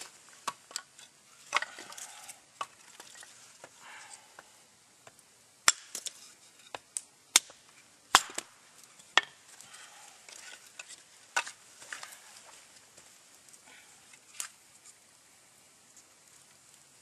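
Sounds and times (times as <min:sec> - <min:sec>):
hatchet chopping wood: 0:05.6 - 0:06.1, 0:06.7 - 0:09.4.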